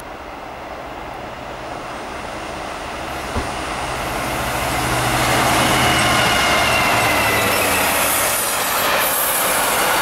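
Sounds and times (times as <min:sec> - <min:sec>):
diesel locomotive engine: 0:00.0 - 0:10.0
wagon wheel and rail noise: 0:03.2 - 0:10.0
high wheel squeal: 0:05.6 - 0:10.0.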